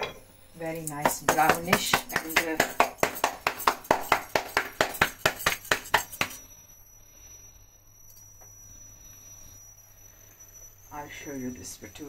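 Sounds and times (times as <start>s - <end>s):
hands slapping dough: 1.0s - 6.4s.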